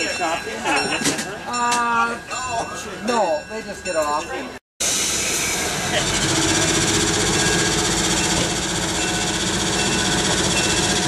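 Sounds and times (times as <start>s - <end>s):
diesel engine clatter: 4.8s - 11.0s.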